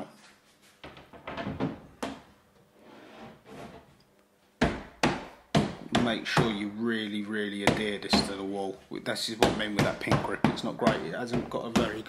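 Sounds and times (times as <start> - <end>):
panel scraping and knocking: 0.8 - 3.9
hand slapping panel thumps: 4.6 - 6.7, 9.4 - 12.0.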